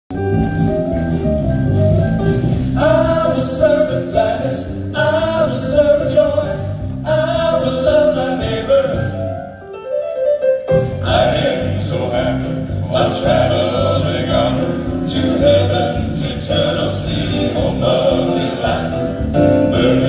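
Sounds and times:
drums: 0:00.1 - 0:09.5, 0:10.7 - 0:20.0
piano: 0:00.1 - 0:20.0
male quartet singing in harmony: 0:02.6 - 0:09.6, 0:10.8 - 0:20.0.

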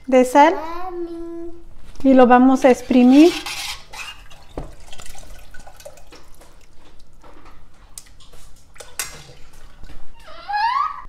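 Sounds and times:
liquid dripping into a bowl: 0:04.2 - 0:10.0.

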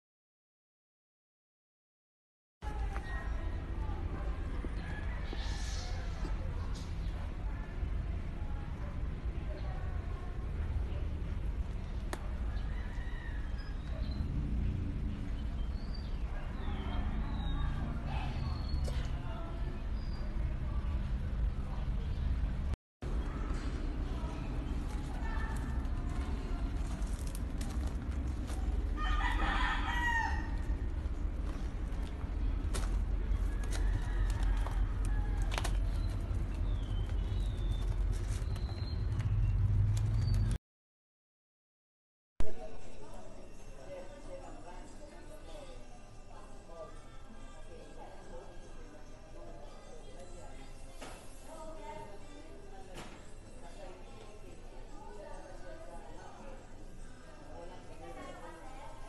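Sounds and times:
rooster crowing: 0:12.5 - 0:13.8, 0:29.0 - 0:30.7, 0:33.5 - 0:35.7
steady low rumble: 0:20.8 - 0:29.0, 0:30.4 - 0:40.6.

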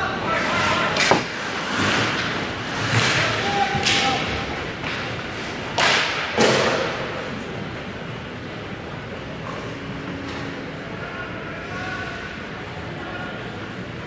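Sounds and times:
knocks against boards: 0:01.0 - 0:01.4.

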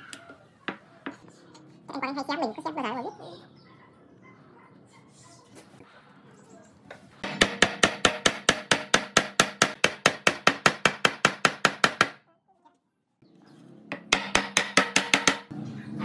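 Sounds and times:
fast sharp knocks: 0:13.9 - 0:15.5.

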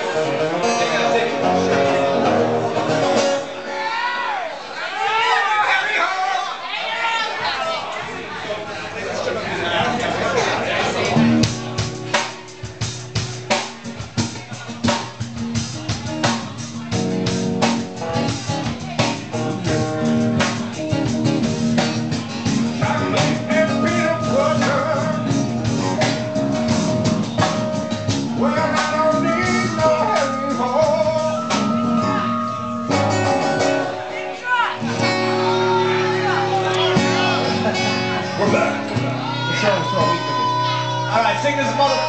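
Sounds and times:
electric guitar chords: 0:00.0 - 0:03.8, 0:10.7 - 0:42.0
drum kit hits: 0:11.1 - 0:34.0
wavering melodic line: 0:30.6 - 0:34.3.

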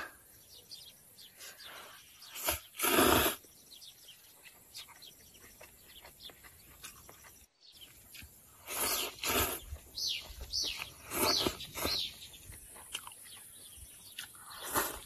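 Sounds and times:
birds chirping faintly: 0:00.0 - 0:15.0
person slurping noodles: 0:02.2 - 0:03.5, 0:08.6 - 0:09.8, 0:11.0 - 0:12.0, 0:14.4 - 0:15.0.

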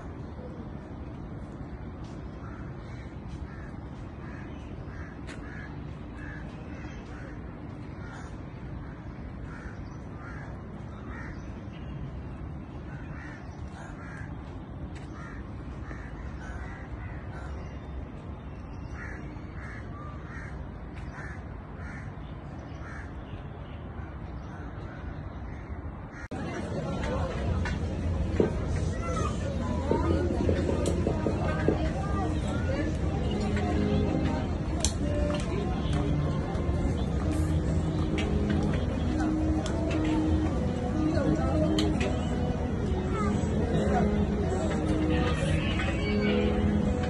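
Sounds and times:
low background noise: 0:00.0 - 0:47.0
crows cawing: 0:02.4 - 0:11.4, 0:12.9 - 0:14.4, 0:15.0 - 0:17.7, 0:19.0 - 0:22.1, 0:22.8 - 0:23.1.

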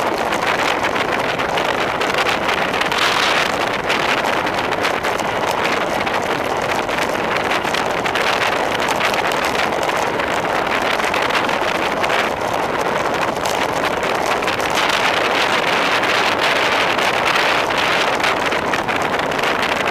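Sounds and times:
wind rushing over microphone: 0:00.0 - 0:19.9.

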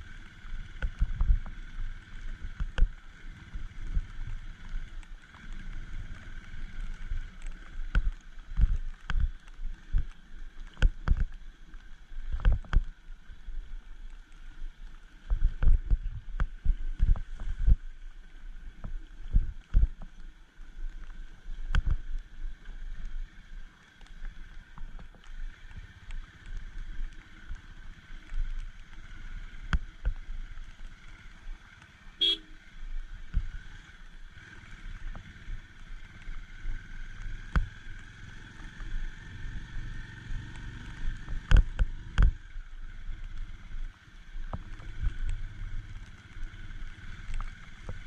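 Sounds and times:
motorcycle engine running: 0:00.0 - 0:20.0, 0:20.6 - 0:48.0
horn beep: 0:32.2 - 0:32.6.

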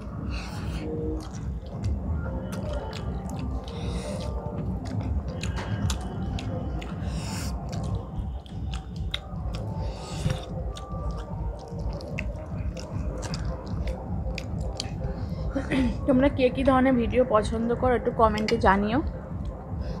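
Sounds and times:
low rumble: 0:00.0 - 0:20.0
chewing and lip smacks: 0:00.4 - 0:15.3.

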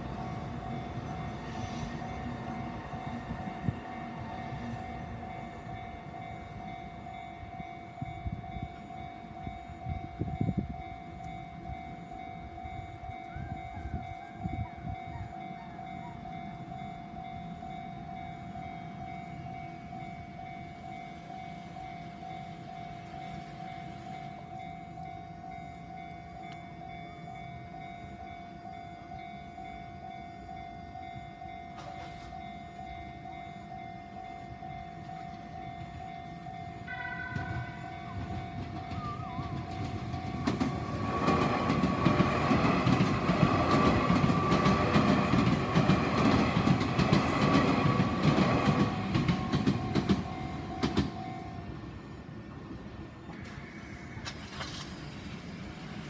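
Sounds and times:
level-crossing warning bell: 0:00.0 - 0:52.8
train rumbling with clattering wheels: 0:00.0 - 0:56.0
train horn: 0:36.6 - 0:41.2.

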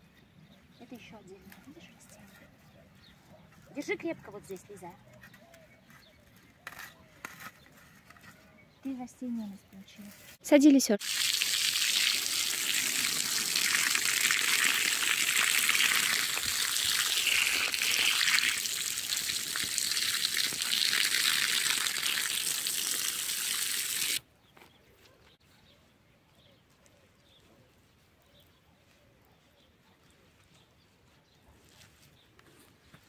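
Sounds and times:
water running in a loud hiss: 0:11.0 - 0:24.2.

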